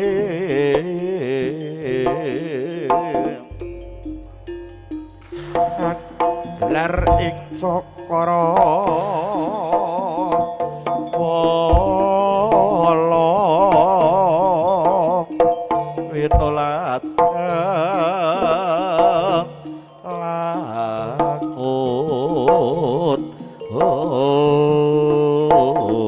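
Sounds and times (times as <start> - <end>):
wavering melody line: 1.3 - 26.0
hand drum strokes: 2.0 - 26.0
deep thumps: 3.5 - 8.2.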